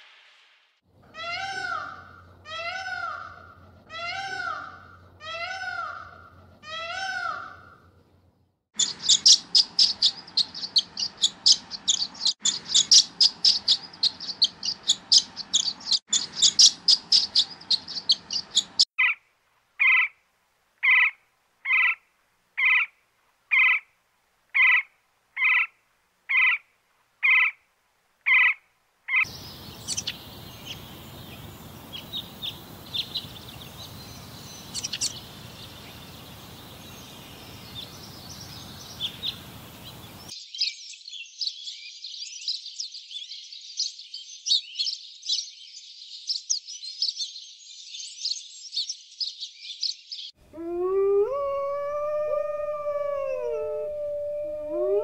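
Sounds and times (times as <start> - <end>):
outdoor background noise: 0.0 - 55.0
bird twittering song: 8.8 - 19.2, 28.3 - 55.0
faint bird chirps: 28.3 - 55.0.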